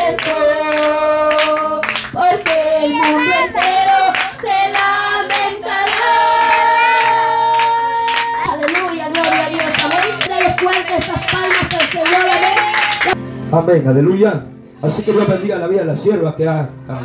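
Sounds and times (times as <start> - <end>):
congregation clapping: 0.0 - 13.2
woman singing a hymn: 0.0 - 13.2.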